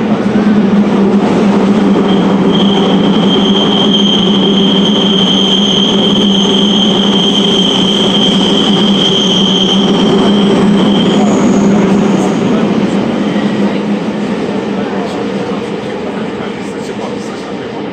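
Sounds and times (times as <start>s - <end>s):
train rumble and hum: 0.0s - 17.9s
high steady squeal: 1.5s - 13.8s.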